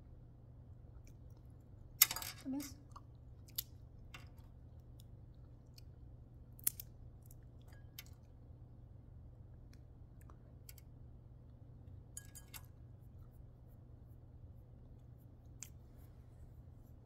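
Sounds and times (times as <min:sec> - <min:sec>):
faint low hum: 0:00.0 - 0:17.0
pod shells cracking: 0:06.6 - 0:07.4.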